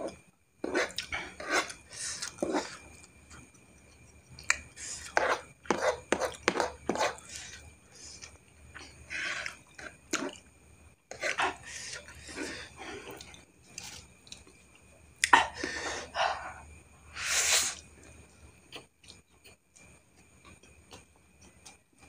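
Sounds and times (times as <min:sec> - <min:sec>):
wet chewing and mouth noises: 0:18.6 - 0:22.0.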